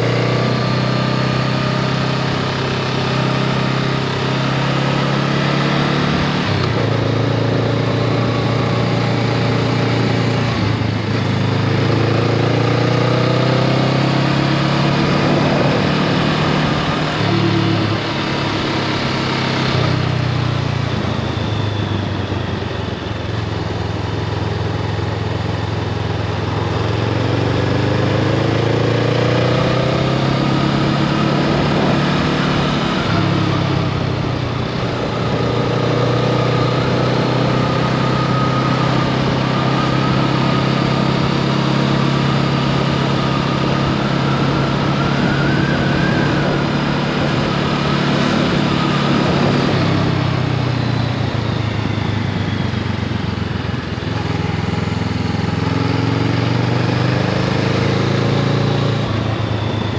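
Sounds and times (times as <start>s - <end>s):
motorcycle engine running: 0.0s - 59.9s
wind noise rushing: 14.4s - 18.4s.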